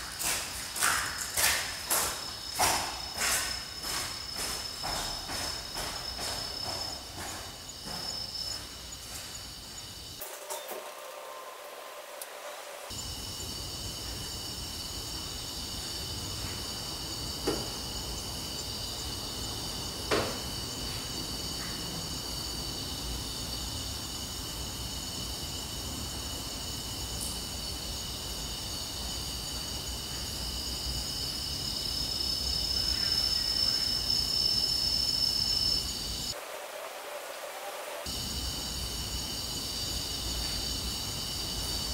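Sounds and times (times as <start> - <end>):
crickets chirring: 0.0 - 41.9.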